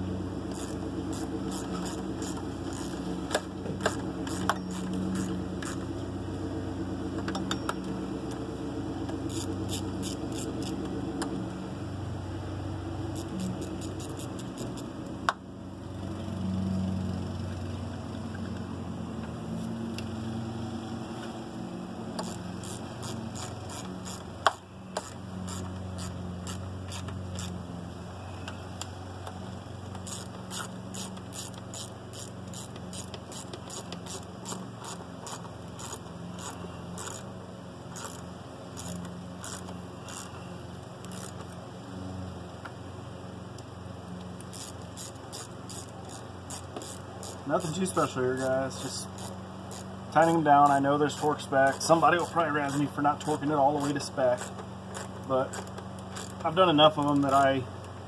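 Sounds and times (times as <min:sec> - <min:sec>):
steady low hum: 0:00.0 - 0:58.0
ratchet clicking: 0:00.5 - 0:05.9, 0:09.2 - 0:10.9, 0:13.1 - 0:14.9, 0:22.2 - 0:27.6, 0:29.9 - 0:37.3, 0:37.9 - 0:40.4, 0:41.0 - 0:41.6, 0:44.4 - 0:56.5.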